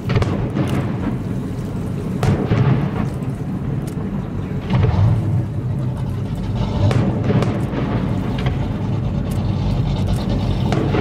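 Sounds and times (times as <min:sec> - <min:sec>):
fireworks booming: 0:00.0 - 0:03.8, 0:04.4 - 0:05.7, 0:06.8 - 0:09.0, 0:10.6 - 0:11.0
low rumbling: 0:00.0 - 0:11.0.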